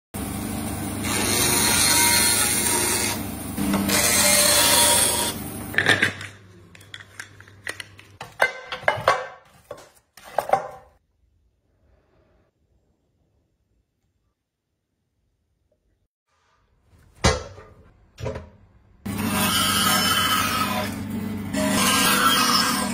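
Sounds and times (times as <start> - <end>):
bandsaw cutting bamboo: 1.0 - 5.5, 19.1 - 22.9.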